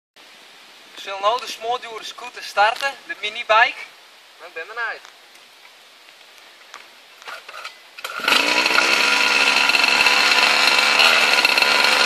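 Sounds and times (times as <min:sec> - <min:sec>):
small two-stroke engine running: 0:07.5 - 0:12.0.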